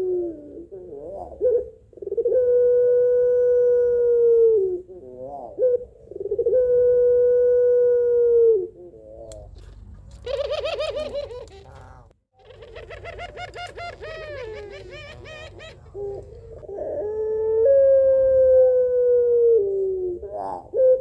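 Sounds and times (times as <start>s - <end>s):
dove cooing: 0.0s - 21.0s
dove rattling laughing call: 10.2s - 17.0s.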